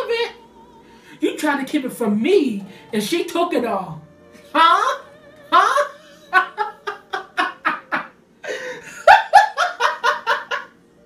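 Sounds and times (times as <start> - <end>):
woman laughing: 5.6 - 10.8.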